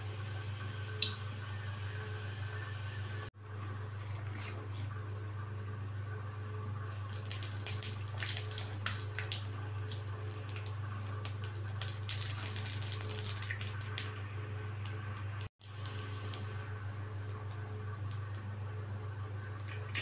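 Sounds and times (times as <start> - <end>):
steady low hum: 0.0 - 20.0
seeds sizzling in hot oil: 6.9 - 14.3, 15.4 - 18.5.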